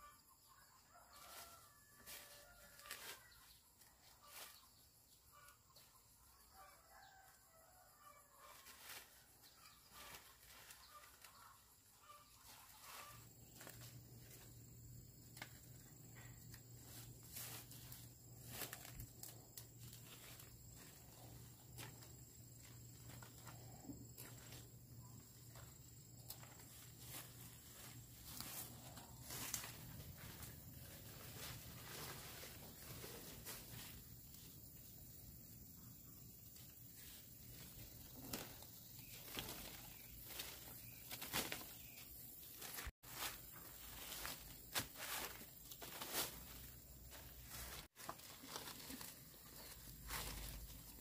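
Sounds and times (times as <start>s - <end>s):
chickens clucking: 8.4s - 13.6s.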